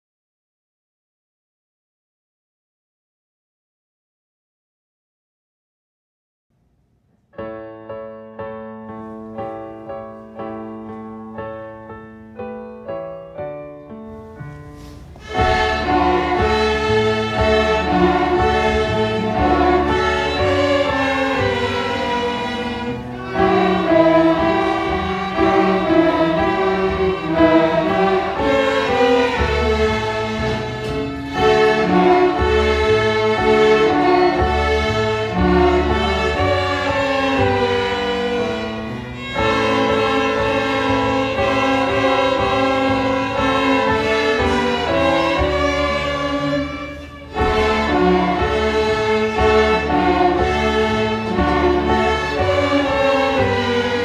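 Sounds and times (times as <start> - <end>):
string orchestra playing: 14.7 - 54.0.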